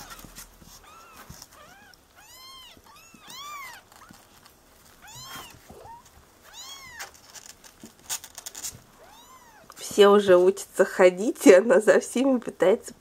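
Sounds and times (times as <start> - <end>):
kittens mewing: 0.8 - 4.3, 5.0 - 7.2.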